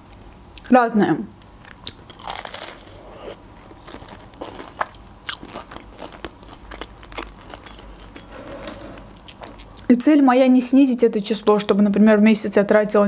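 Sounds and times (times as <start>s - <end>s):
crispy pastry crunch: 0.5s - 8.2s
close-up chewing: 1.6s - 8.2s.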